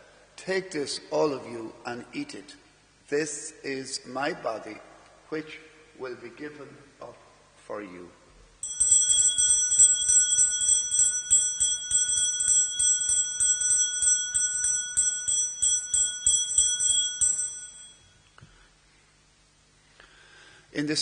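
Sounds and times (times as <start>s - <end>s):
altar bells ringing: 8.6s - 18.4s.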